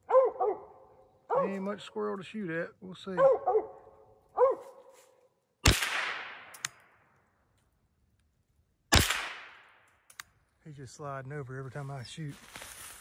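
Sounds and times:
dog barking: 0.0s - 1.6s, 3.1s - 5.0s
gunshots echoing through woods: 5.6s - 7.2s, 8.9s - 10.1s.

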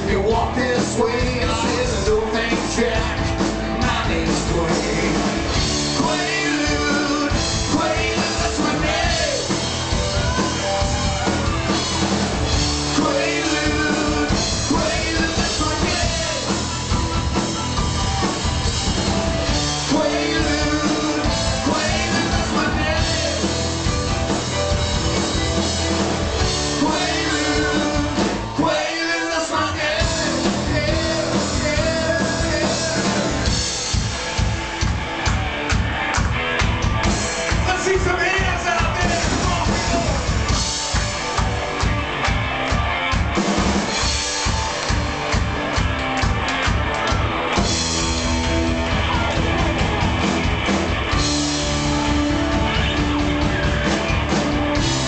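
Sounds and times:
male voices singing: 0.0s - 9.6s, 12.8s - 16.7s, 19.6s - 23.9s, 26.6s - 33.5s
bass guitar: 0.0s - 55.0s
drum kit: 0.0s - 55.0s
electric guitar: 0.0s - 55.0s
keyboard: 0.0s - 55.0s.

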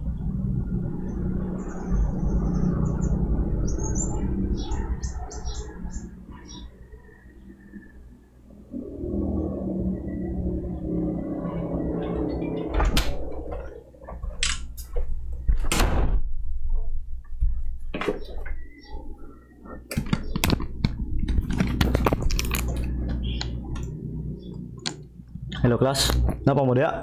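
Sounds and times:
low hum: 0.0s - 17.9s, 18.5s - 26.4s
sharp knocks and clicks: 19.9s - 23.9s.

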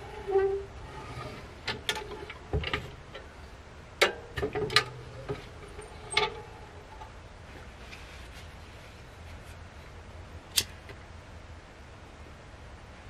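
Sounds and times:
sharp clicks and knocks: 4.0s - 7.2s.

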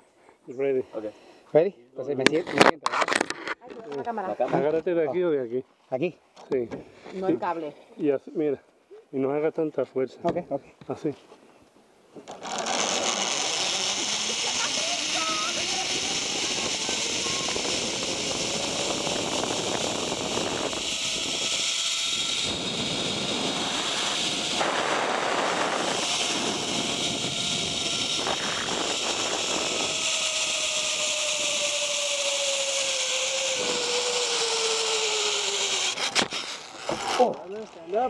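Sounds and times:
zip line pulleys whining on cable: 12.2s - 38.0s
wind on microphone: 13.6s - 31.7s.

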